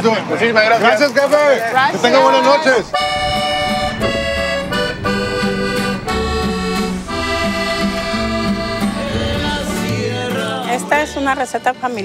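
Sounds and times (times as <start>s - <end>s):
held chords: 2.2s - 12.0s
pulsing bass line: 2.6s - 11.2s.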